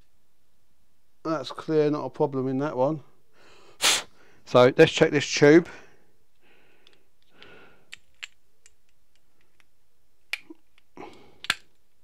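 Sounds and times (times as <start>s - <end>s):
small metal parts clicking: 10.3s - 12.0s.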